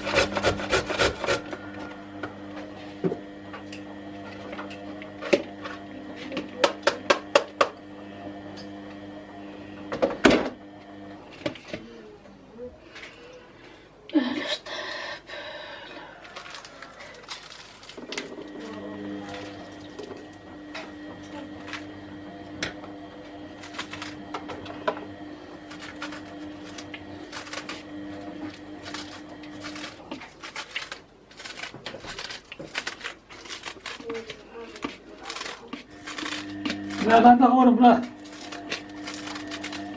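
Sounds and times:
lettuce leaves tearing and snapping: 0:16.3 - 0:20.3, 0:23.5 - 0:24.3, 0:25.6 - 0:37.2, 0:38.1 - 0:39.9.

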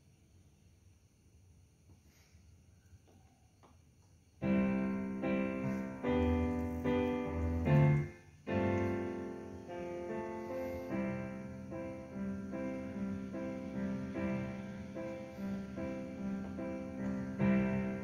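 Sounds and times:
piano chords: 0:04.4 - 0:18.0.

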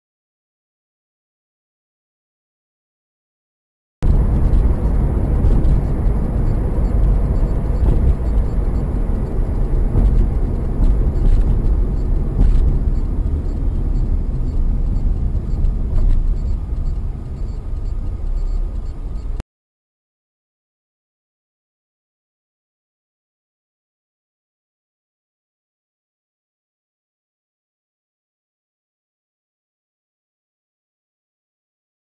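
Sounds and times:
car engine and road noise: 0:04.0 - 0:19.4.

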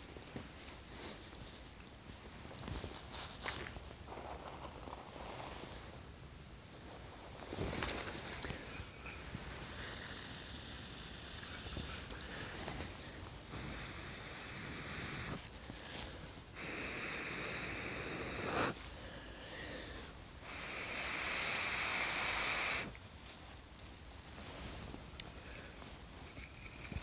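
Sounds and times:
person blowing into tinder: 0:08.4 - 0:18.8, 0:20.4 - 0:23.0.

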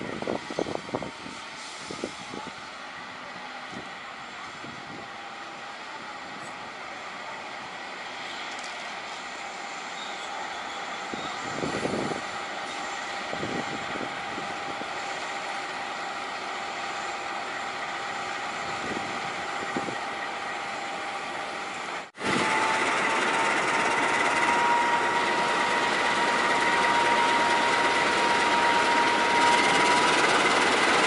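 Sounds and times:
locomotive diesel engine: 0:00.0 - 0:31.0
steady rising whine: 0:17.0 - 0:31.0.

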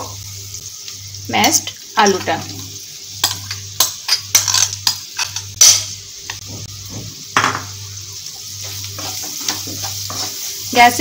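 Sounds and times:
light sizzle: 0:00.0 - 0:11.0
wooden spatula stirring in pan: 0:08.6 - 0:10.9.

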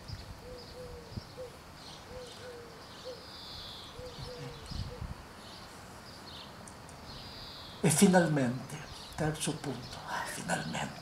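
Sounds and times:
bird hooting: 0:00.4 - 0:05.1.

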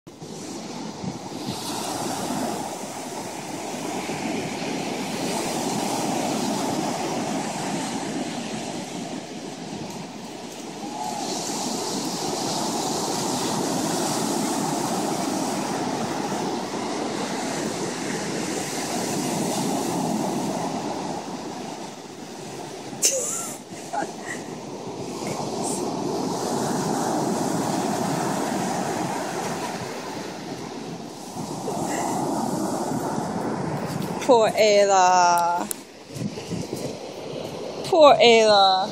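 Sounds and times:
waves breaking on beach: 0:00.1 - 0:38.9.

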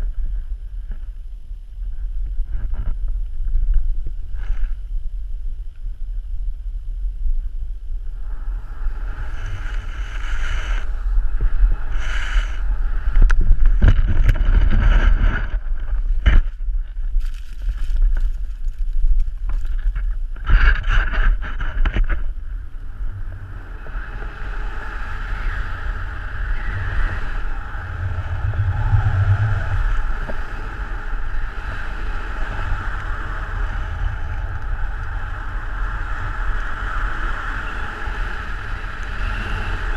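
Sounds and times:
wind on microphone: 0:00.0 - 0:39.9
snowboard sliding on snow: 0:08.5 - 0:16.3, 0:22.6 - 0:39.9.

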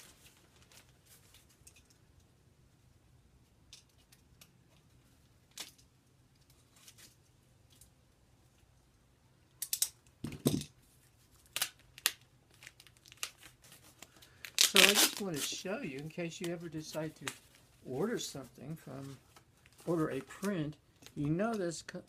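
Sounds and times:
packing tape and plastic crackling: 0:00.0 - 0:02.3, 0:03.7 - 0:08.0, 0:11.0 - 0:22.0.

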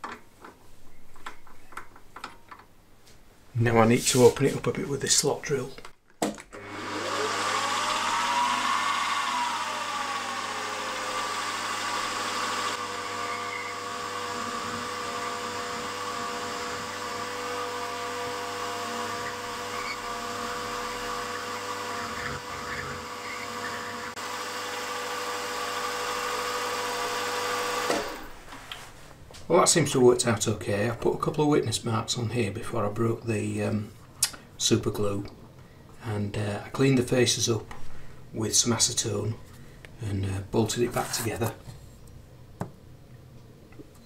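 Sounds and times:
milling machine whine: 0:06.6 - 0:28.3.

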